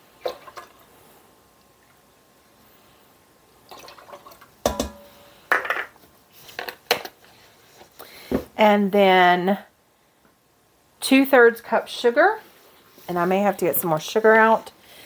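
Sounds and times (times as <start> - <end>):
liquid pouring and dripping: 3.7 - 4.5.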